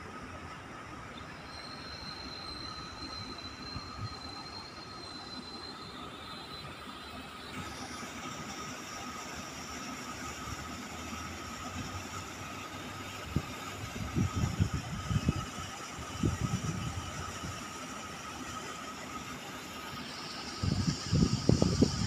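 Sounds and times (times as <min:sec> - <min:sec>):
outdoor background hum: 0:00.0 - 0:22.0
wind rumbling on microphone: 0:13.2 - 0:17.6, 0:20.6 - 0:22.0.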